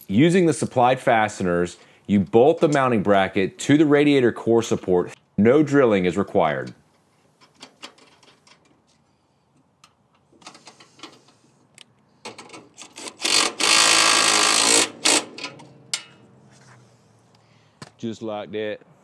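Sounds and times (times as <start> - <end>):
cordless driver motor running: 13.0 - 15.2.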